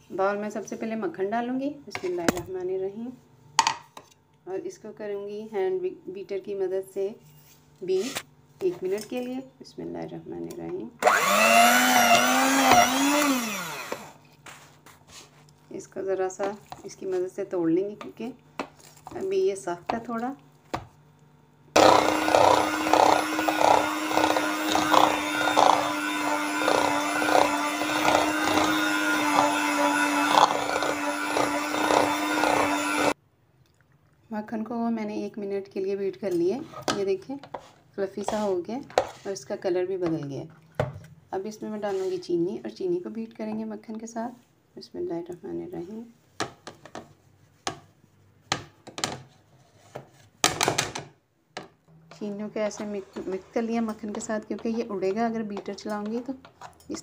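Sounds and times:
electric hand mixer creaming butter: 11.0 - 14.2, 21.8 - 33.2, 52.6 - 56.2.

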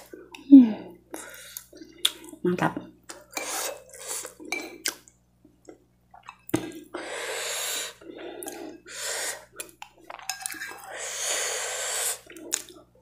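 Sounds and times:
hissing breaths: 6.9 - 9.6, 10.8 - 12.3.

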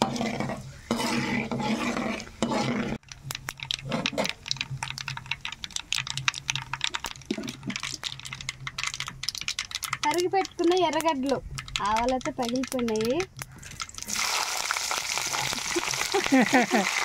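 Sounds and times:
spices sizzling in hot oil: 0.0 - 17.0
mustard seeds popping: 3.0 - 16.5.

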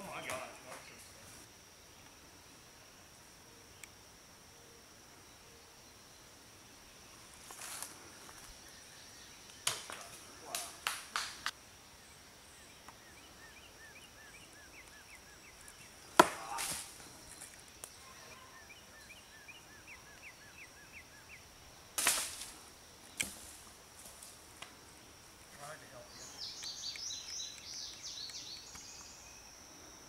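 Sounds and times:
faint high insect buzz: 0.0 - 30.0
bird chirping: 11.8 - 21.8, 24.8 - 30.0.

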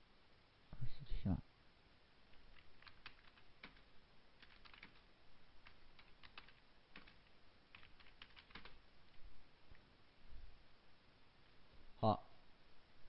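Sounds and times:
typing on keyboard: 2.3 - 8.8.

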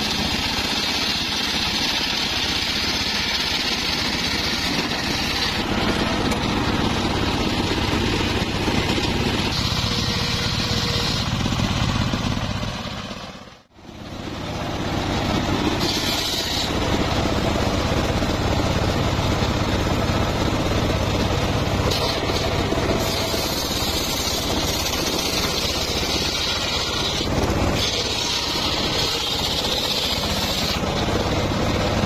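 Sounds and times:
table saw running: 0.0 - 12.6, 13.9 - 32.0
saw blade whining cutting wood: 0.0 - 13.7, 14.3 - 32.0.

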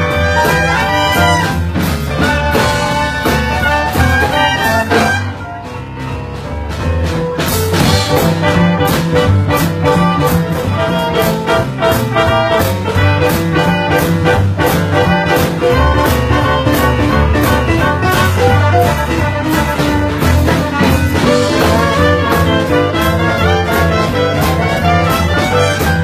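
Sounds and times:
live band playing boogie-woogie: 0.0 - 26.0
piano: 0.0 - 26.0.

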